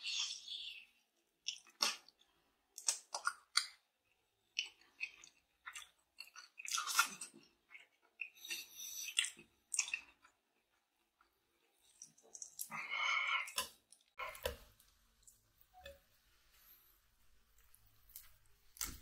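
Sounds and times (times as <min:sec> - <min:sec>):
person chewing meat: 0:01.4 - 0:15.9.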